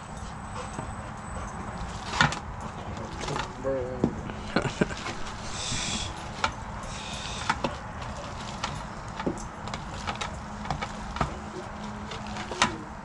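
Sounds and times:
hands working seasoning into meat: 4.8s - 12.8s.

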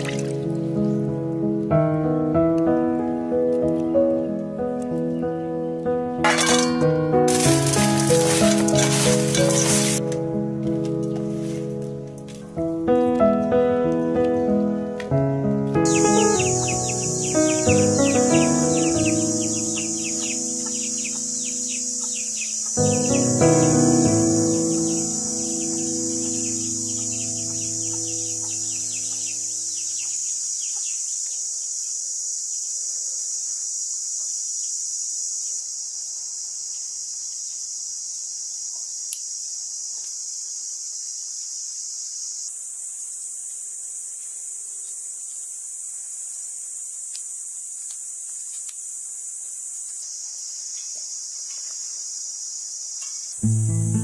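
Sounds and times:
high-pitched insect chorus: 6.3s - 10.5s, 15.8s - 54.0s.

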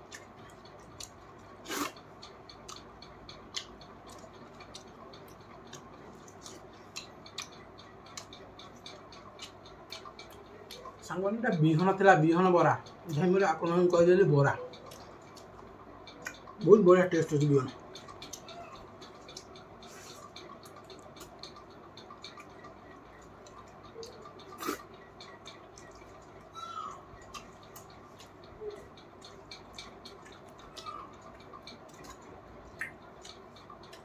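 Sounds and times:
wet chewing and mouth smacks: 0.1s - 11.1s, 27.2s - 34.0s.

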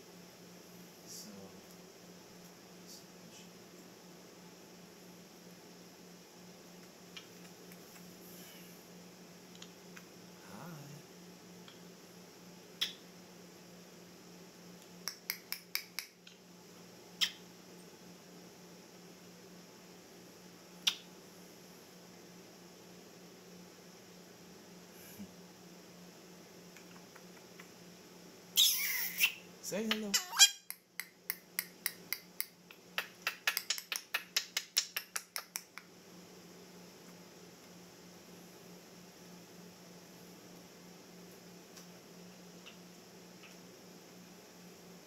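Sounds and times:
faint steady hum: 0.0s - 45.0s
parrot clicking: 15.0s - 16.1s, 29.9s - 35.8s.

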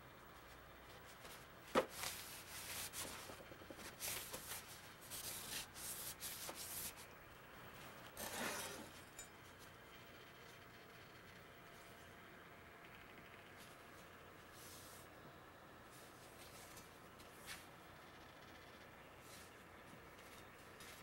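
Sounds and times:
cloth rubbing steel blade: 8.2s - 9.3s.

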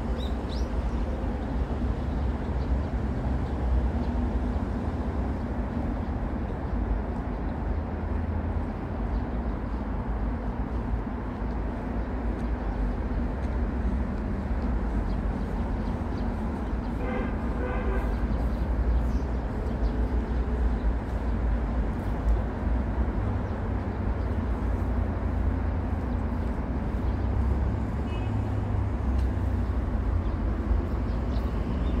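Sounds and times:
road traffic rumble: 0.0s - 32.0s.

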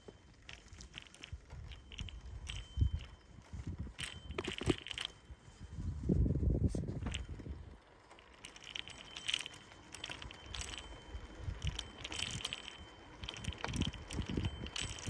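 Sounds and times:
bicycle clicks and rattles: 0.0s - 15.0s
bicycle rumbling: 0.0s - 15.0s.

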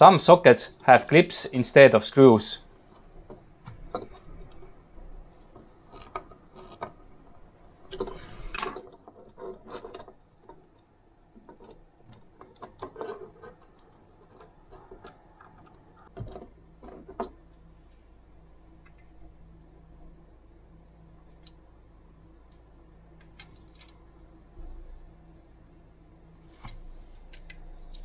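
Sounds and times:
metal and plastic clicks and scrapes: 2.9s - 18.0s.

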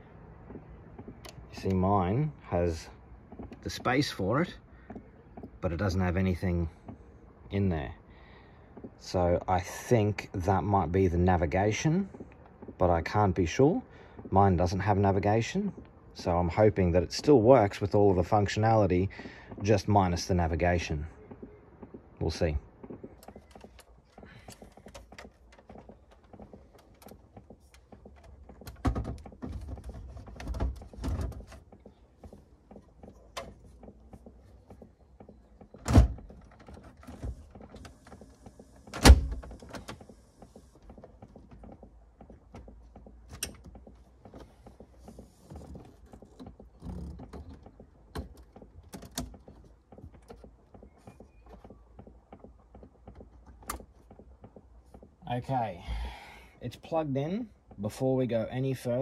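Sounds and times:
knocks clicks and rattles: 16.5s - 55.2s.

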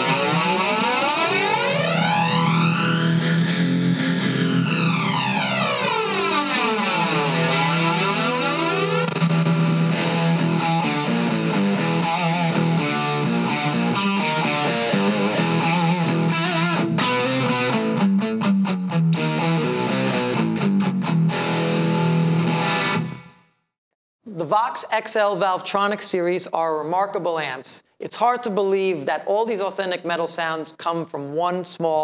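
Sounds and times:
distorted electric guitar riffing: 0.0s - 23.4s.

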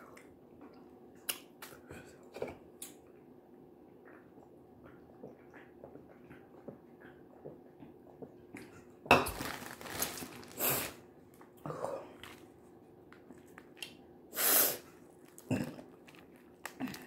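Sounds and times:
crawfish shells crackling: 9.3s - 11.0s.

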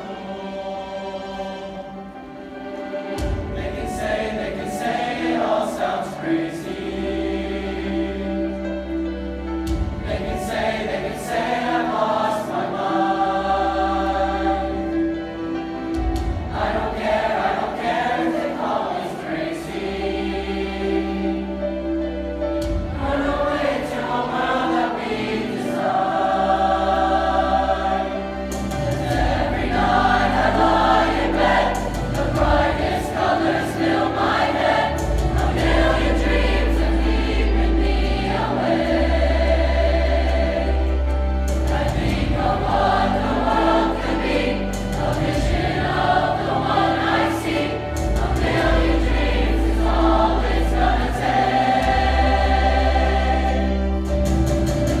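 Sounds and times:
choir singing: 0.0s - 55.0s
deep bass accompaniment: 25.9s - 55.0s.

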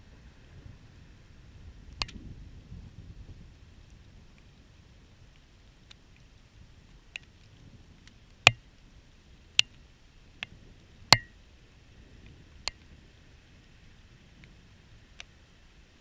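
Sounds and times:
faint storm background: 0.0s - 16.0s
raindrops ticking on camera housing: 3.8s - 11.4s.

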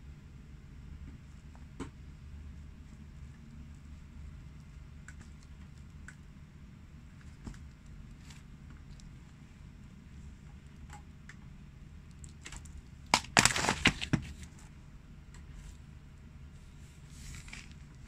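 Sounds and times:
pumpkin cracking under shoe: 12.5s - 14.3s.

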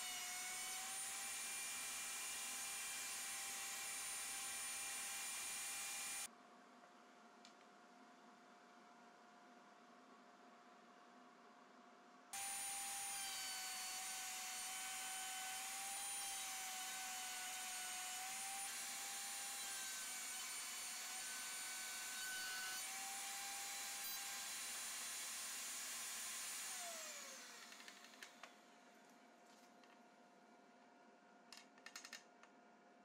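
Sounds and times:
router whining: 0.0s - 6.3s, 12.4s - 28.6s.

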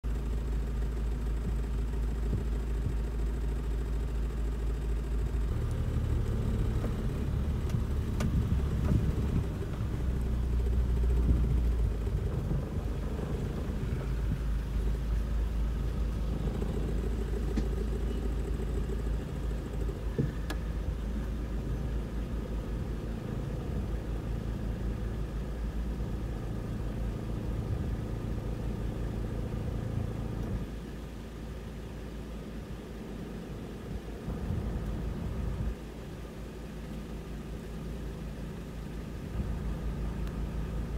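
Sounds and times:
vehicle engine idling: 0.0s - 40.9s.

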